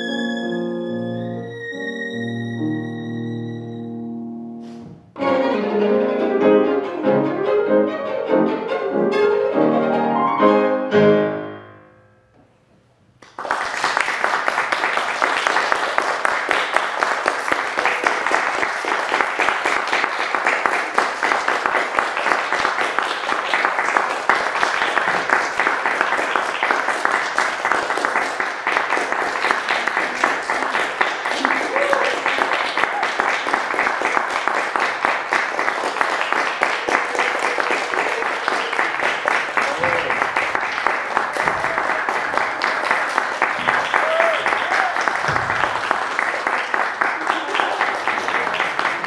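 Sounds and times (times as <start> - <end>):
violin and piano playing: 0.0 - 11.6
applause: 13.2 - 49.0.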